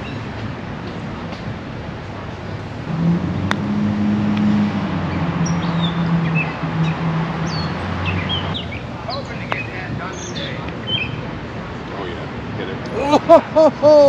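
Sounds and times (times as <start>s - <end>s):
vehicle engine humming: 2.1s - 10.0s
birds chirping: 5.1s - 11.3s.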